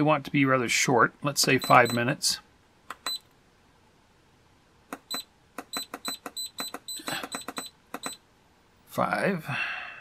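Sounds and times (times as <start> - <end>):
short high beeps: 1.6 - 2.0, 3.0 - 3.2, 5.1 - 8.2.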